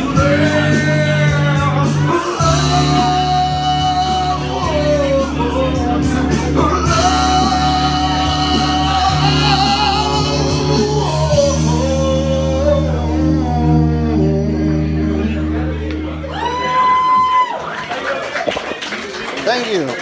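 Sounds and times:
man singing into microphone: 0:00.0 - 0:15.9
backing music with bass line: 0:00.0 - 0:17.6.

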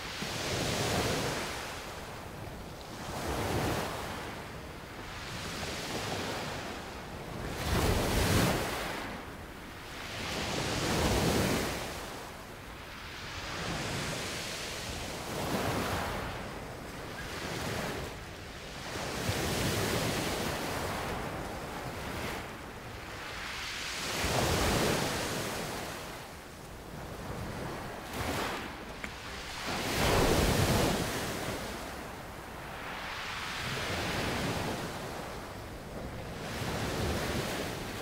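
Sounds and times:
sea waves breaking on shore: 0:00.0 - 0:38.0.

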